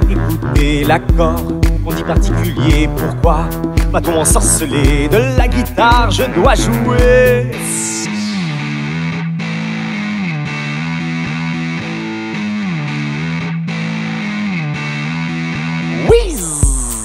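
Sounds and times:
thumping beat: 0.0s - 7.4s, 16.0s - 17.0s
distorted electric guitar melody: 4.4s - 17.0s.

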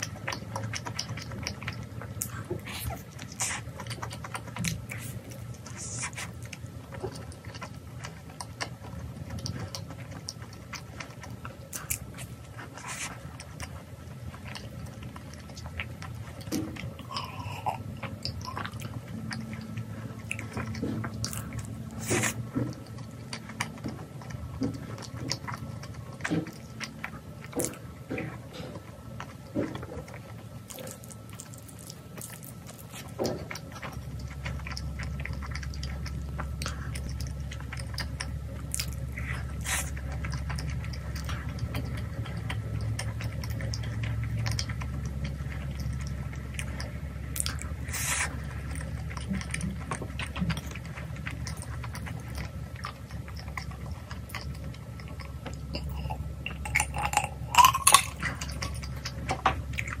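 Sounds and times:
chewing and mouth sounds: 0.0s - 60.0s
steady low hum: 0.0s - 60.0s
person drinking from a glass: 55.8s - 58.6s.

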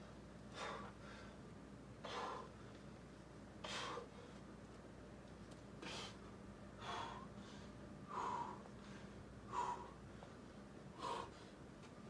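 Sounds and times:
forceful exhalations of effort: 6.8s - 10.2s.

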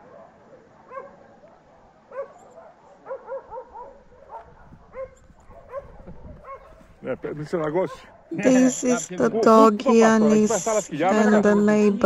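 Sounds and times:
dog yipping: 0.9s - 6.9s.

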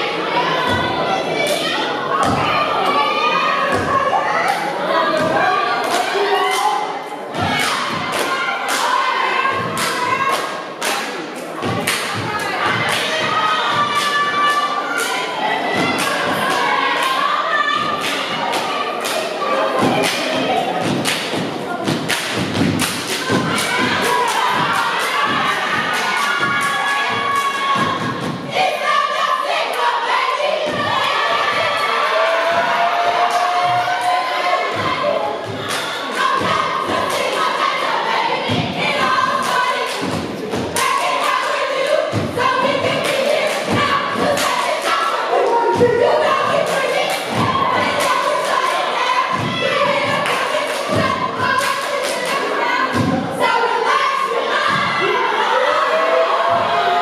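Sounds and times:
voices chanting: 0.0s - 57.0s
stomping and clapping: 3.7s - 28.8s, 30.6s - 53.6s
sharp hand claps: 7.5s - 9.0s, 9.6s - 13.2s, 18.0s - 28.3s, 42.9s - 45.1s, 50.1s - 52.5s
heavy stomps: 20.8s - 28.5s, 40.0s - 41.0s, 42.1s - 43.0s.

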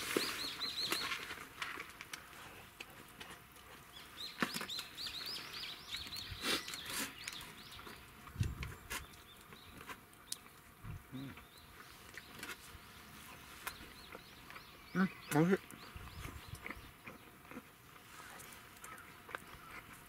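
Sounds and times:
songbird chirping: 0.0s - 1.4s, 3.7s - 20.0s.

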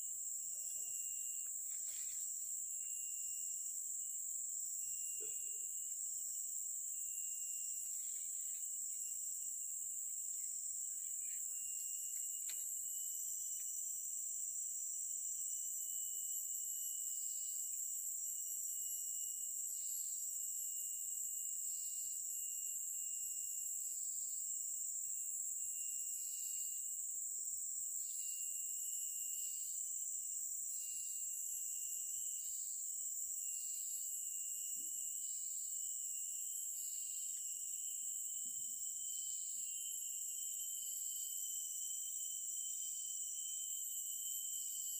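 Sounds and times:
high-pitched insect chorus: 0.0s - 44.9s
pulsing insect call: 0.0s - 44.9s.

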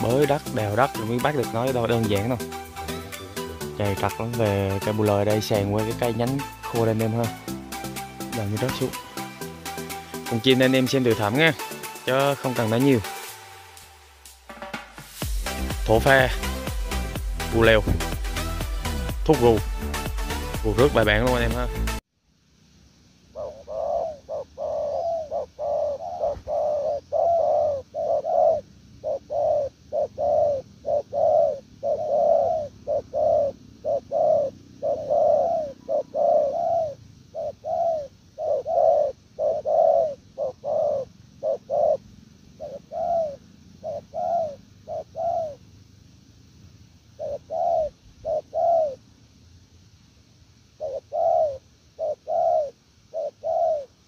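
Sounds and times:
dove cooing: 0.0s - 13.3s, 23.3s - 45.8s, 47.1s - 49.0s, 50.8s - 54.0s.

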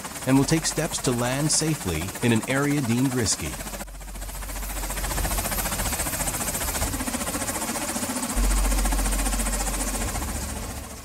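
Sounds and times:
helicopter turbine and rotor noise: 0.0s - 11.0s
deep rumble: 8.4s - 11.0s.

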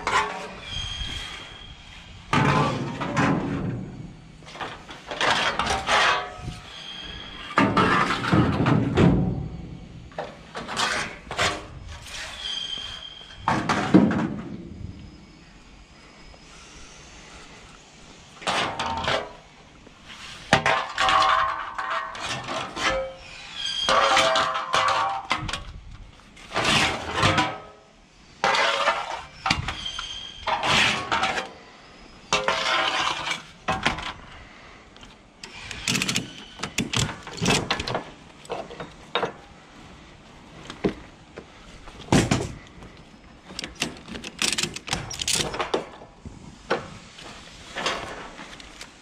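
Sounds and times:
ratchet strap buckles clanking: 35.0s - 39.0s, 43.4s - 45.8s.

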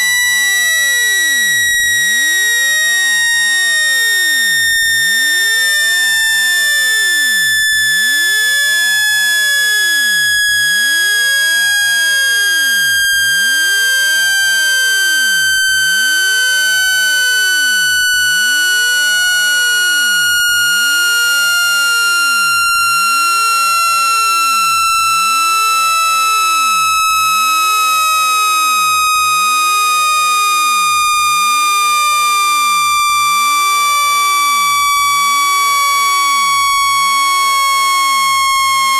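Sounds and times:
electronic tone gliding down: 12.7s - 27.5s.

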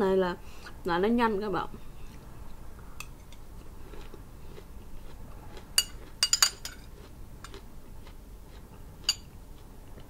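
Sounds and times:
metal spoon clinking glass bowl: 5.8s - 6.8s, 9.1s - 9.3s.

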